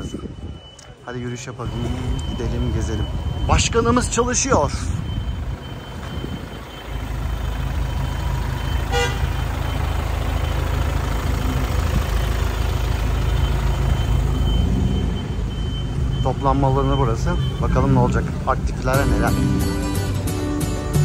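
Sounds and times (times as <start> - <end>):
vehicle engine rumble: 0.0 - 21.0
short horn beep: 8.8 - 9.4.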